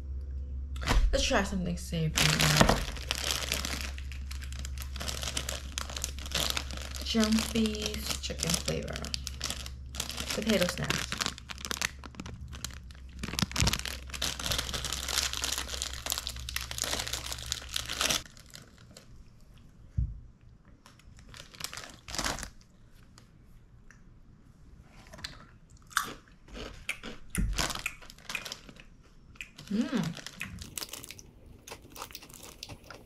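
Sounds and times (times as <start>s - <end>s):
foil bag crinkling: 2.1s - 19.2s, 20.8s - 23.2s, 27.5s - 29.0s, 29.6s - 33.0s
crunchy biting and chewing: 25.2s - 33.0s.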